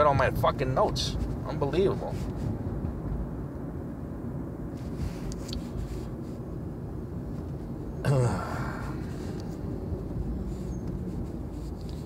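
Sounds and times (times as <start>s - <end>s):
low background rumble: 0.0s - 12.0s
faint rustle: 1.1s - 2.7s, 4.7s - 12.0s.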